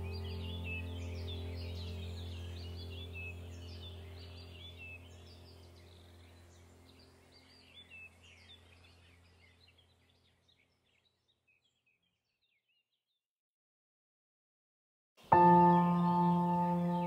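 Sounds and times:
soft music drone: 0.0s - 9.8s, 15.3s - 17.0s
birds chirping: 0.0s - 12.9s, 15.2s - 17.0s.

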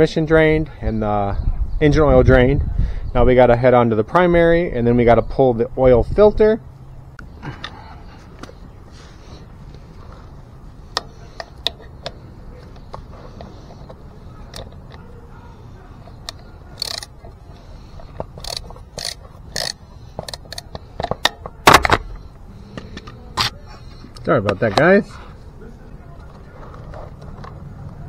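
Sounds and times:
camera handling clicks and knocks: 18.0s - 22.0s.

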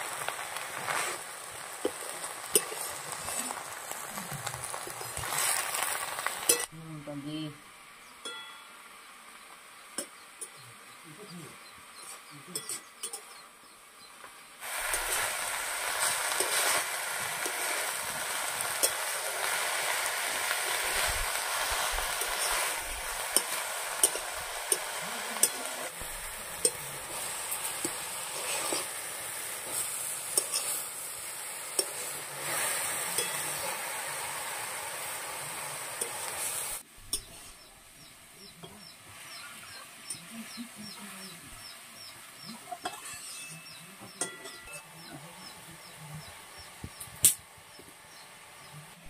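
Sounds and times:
food sizzling in hot oil: 0.0s - 11.0s, 11.6s - 48.8s
spatula scraping a pan: 0.6s - 3.6s, 14.6s - 31.0s, 42.8s - 44.7s.

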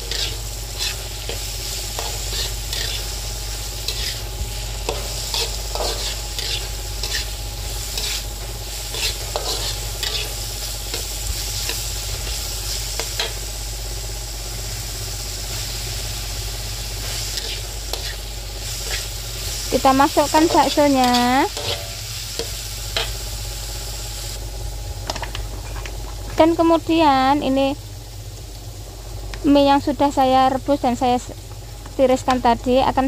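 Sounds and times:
metal spatula scraping a pan: 0.0s - 3.2s, 3.8s - 4.2s, 4.8s - 8.2s, 8.9s - 11.1s, 17.3s - 18.2s, 20.3s - 22.0s
vegetables sizzling in a wok: 0.0s - 33.0s.

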